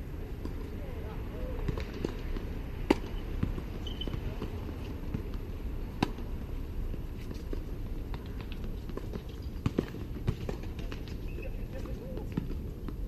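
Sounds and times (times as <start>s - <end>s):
racket striking tennis ball: 1.6s - 5.2s.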